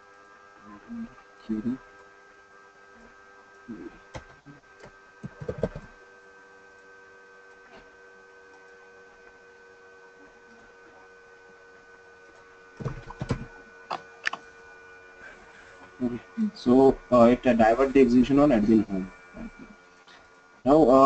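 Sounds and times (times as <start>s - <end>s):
steady electrical hum: 0.0s - 21.0s.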